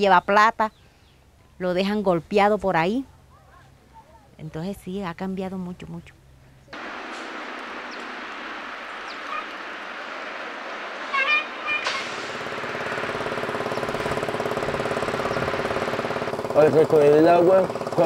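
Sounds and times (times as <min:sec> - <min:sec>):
dump truck engine: 0:06.7 - 0:18.0
steady machine noise: 0:06.8 - 0:18.0.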